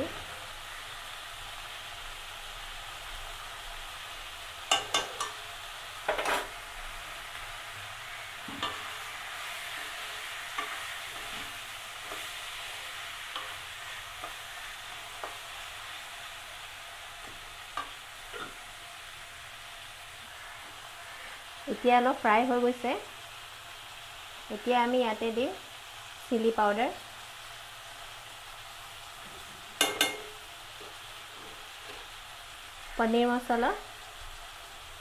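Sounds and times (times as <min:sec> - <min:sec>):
vegetables sizzling in hot oil: 0:00.0 - 0:35.0
spatula striking metal pan: 0:04.7 - 0:05.4, 0:29.8 - 0:30.4.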